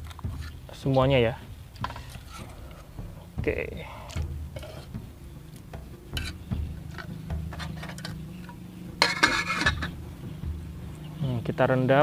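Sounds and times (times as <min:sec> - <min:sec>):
meat clinking against a wok: 0:06.1 - 0:10.0.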